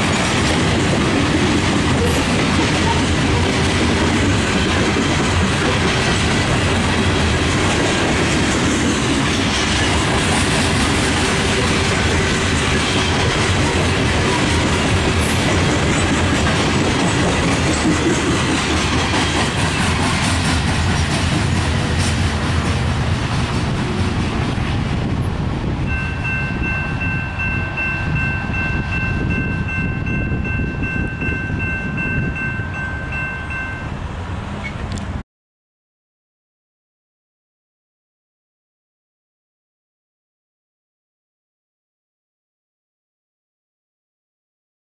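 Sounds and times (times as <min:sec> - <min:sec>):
freight train rolling past: 0:00.0 - 0:35.2.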